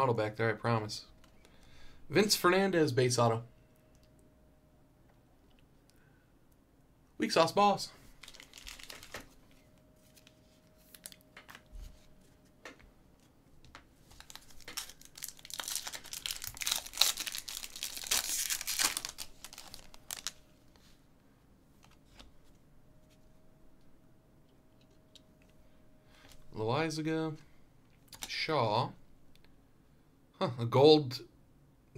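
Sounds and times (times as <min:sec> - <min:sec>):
foil wrapper crinkling and tearing: 0:08.1 - 0:09.5, 0:10.1 - 0:11.2, 0:14.1 - 0:20.4.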